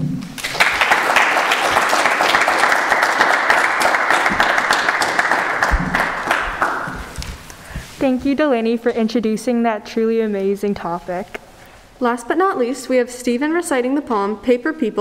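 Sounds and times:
audience applauding: 0.4 - 7.4.

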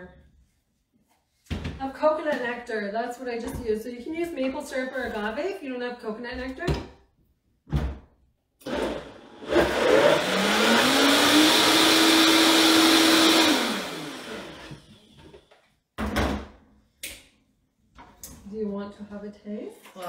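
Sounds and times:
blender motor whine: 8.6 - 15.2.

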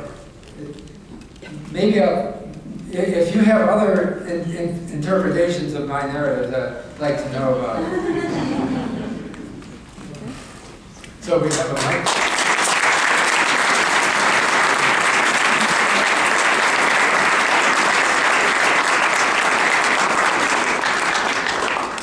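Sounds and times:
audience clapping: 11.4 - 22.0.

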